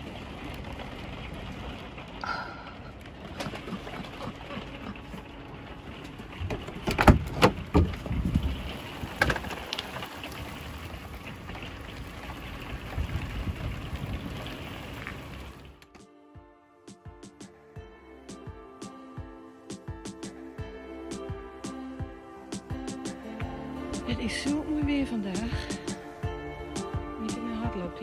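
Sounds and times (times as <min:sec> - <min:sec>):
storm wind: 0:00.0 - 0:15.8
rain: 0:00.0 - 0:15.9, 0:17.5 - 0:28.0.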